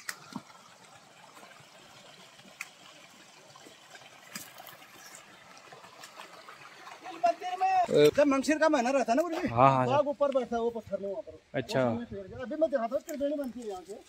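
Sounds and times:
stream trickling over rocks: 0.0s - 14.0s.

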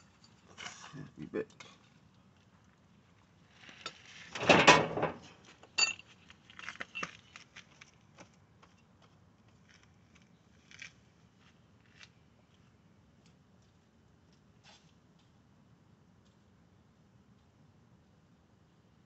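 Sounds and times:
metallic clink: 5.8s - 6.0s.

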